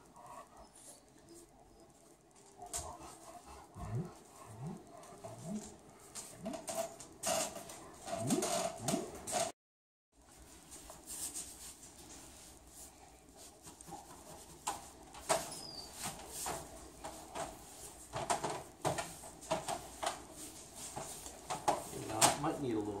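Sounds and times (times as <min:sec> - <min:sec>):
paintbrush strokes on wall: 0:10.2 - 0:18.1, 0:19.1 - 0:23.0.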